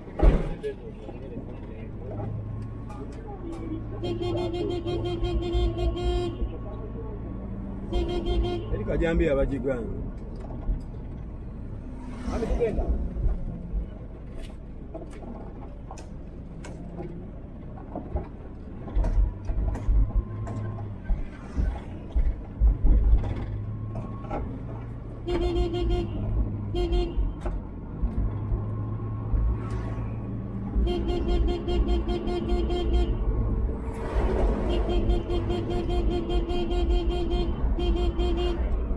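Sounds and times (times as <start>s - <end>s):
vehicle horn beeping: 3.8s - 6.6s, 7.8s - 8.9s, 25.2s - 27.4s, 30.8s - 33.3s, 34.6s - 38.8s
engine humming: 9.7s - 38.9s
low rumbling bumps: 10.0s - 25.4s.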